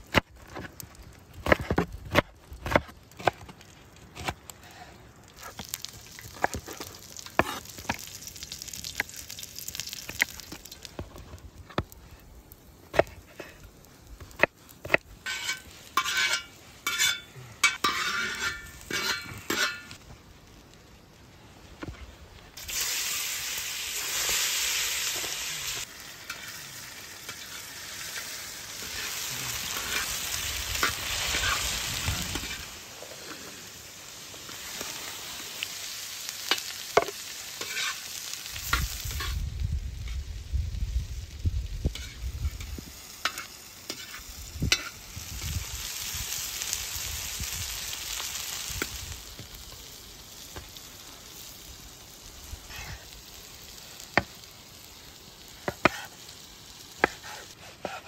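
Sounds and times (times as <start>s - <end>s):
potatoes sizzling in hot oil: 5.3s - 20.0s, 22.6s - 58.0s
knife on wooden cutting board: 57.0s - 58.0s.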